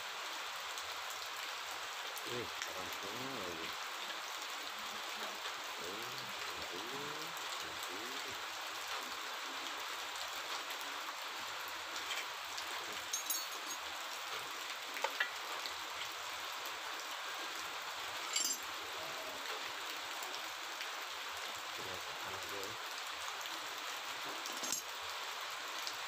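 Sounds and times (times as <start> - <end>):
running water splashing on metal: 0.0 - 26.0
light metallic clinks: 13.1 - 13.9, 18.2 - 18.7, 24.5 - 24.9.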